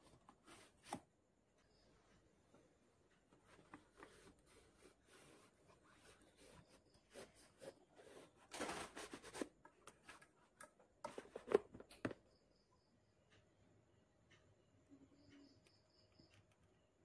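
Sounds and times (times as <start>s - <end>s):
rustling paper: 3.5s - 10.2s.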